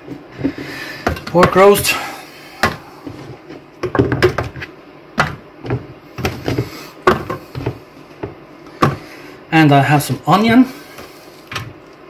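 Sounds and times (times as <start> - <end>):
carrot chunks knocking in a tray: 5.2 - 9.0.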